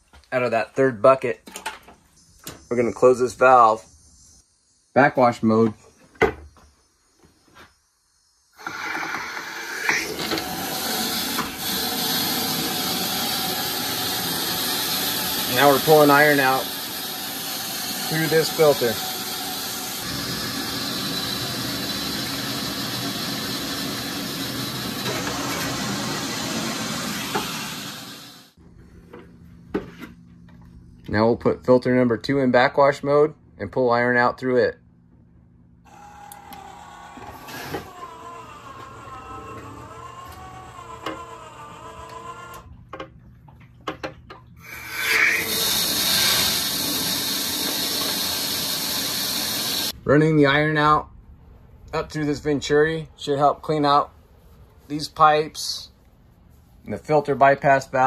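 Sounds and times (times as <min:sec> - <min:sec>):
motorized valve whirring: 0:08.5 - 0:28.6, 0:35.9 - 0:42.7, 0:44.6 - 0:50.0
water rushing through pipes: 0:44.5 - 0:49.9.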